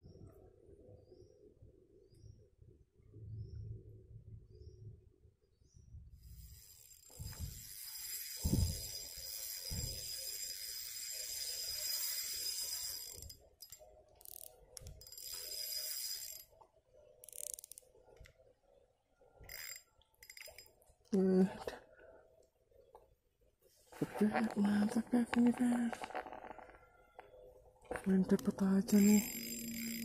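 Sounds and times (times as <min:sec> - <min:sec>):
fishing reel drag buzzing: 0:06.2 - 0:16.6, 0:17.2 - 0:17.8, 0:19.4 - 0:20.7, 0:28.9 - 0:30.0.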